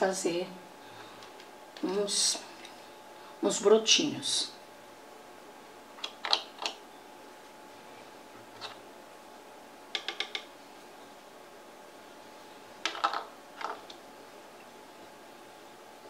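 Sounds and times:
plastic paint pots clicking: 0:09.9 - 0:10.5, 0:12.8 - 0:14.0.

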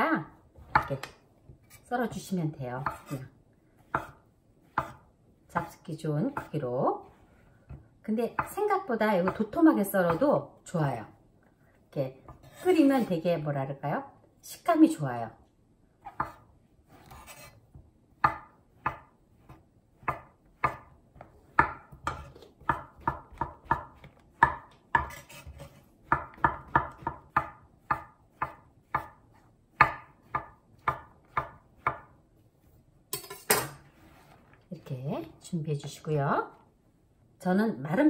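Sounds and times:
knife chopping on wooden board: 0:02.8 - 0:06.6, 0:16.0 - 0:17.5, 0:18.2 - 0:32.1.

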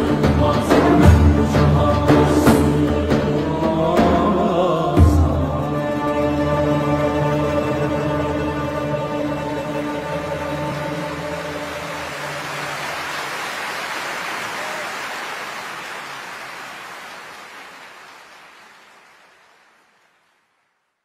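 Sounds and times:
orchestra and choir chord: 0:00.0 - 0:12.9
audience applause: 0:10.6 - 0:20.8.

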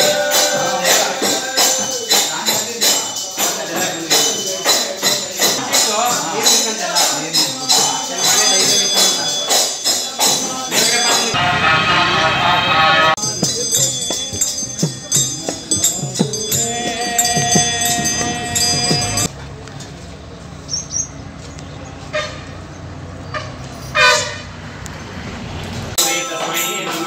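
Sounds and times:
music with jingling percussion: 0:00.0 - 0:11.4, 0:13.2 - 0:19.3, 0:26.0 - 0:27.0.

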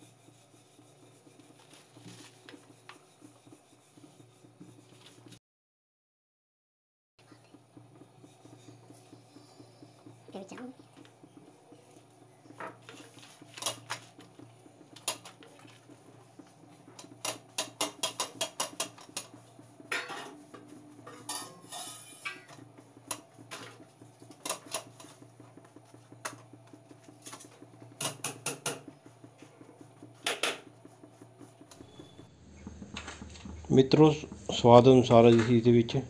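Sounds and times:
steady low hum: 0:07.2 - 0:36.0.

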